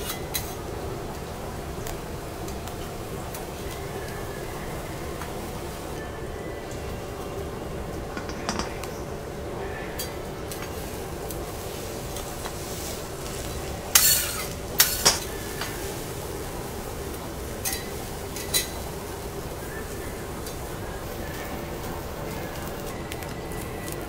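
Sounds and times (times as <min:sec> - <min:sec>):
kitchen hum: 0:00.0 - 0:24.0
metal clanking on griddle: 0:08.2 - 0:08.9, 0:13.9 - 0:15.8, 0:17.6 - 0:18.8.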